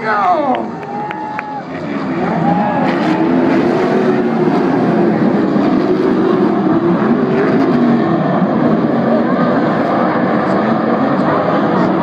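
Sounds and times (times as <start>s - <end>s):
race truck engines revving: 0.0s - 12.0s.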